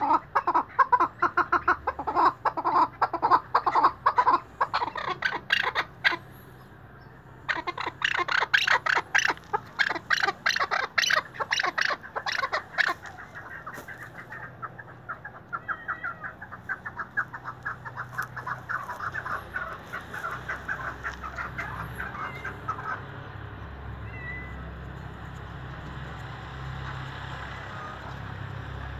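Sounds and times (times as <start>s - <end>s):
partridge clucking calls: 0.0s - 28.9s.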